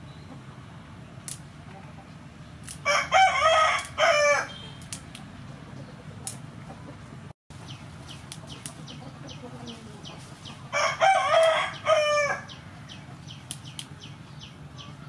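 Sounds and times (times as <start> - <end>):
rooster crowing: 2.8 - 4.6, 10.7 - 12.6.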